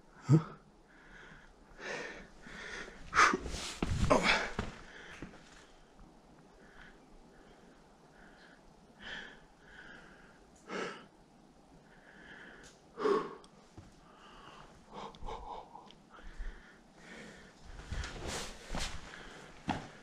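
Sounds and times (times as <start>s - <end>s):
person breathing and sniffing: 1.8s - 5.8s, 14.2s - 20.0s.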